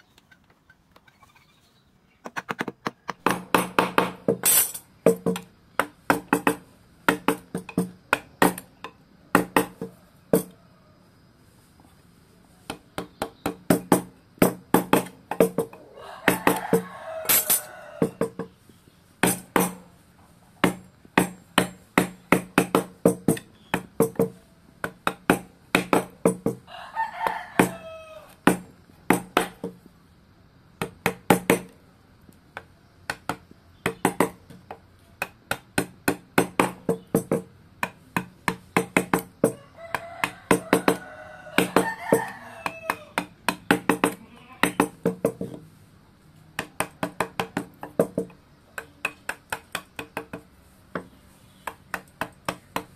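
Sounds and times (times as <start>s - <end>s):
rooster crowing: 9.9s - 11.2s, 15.8s - 18.4s, 26.6s - 28.4s, 39.4s - 43.4s
mallet tapping chisel into wood: 20.6s - 26.6s, 28.5s - 29.8s, 33.1s - 39.6s, 41.6s - 45.6s, 46.6s - 50.4s, 51.0s - 52.9s.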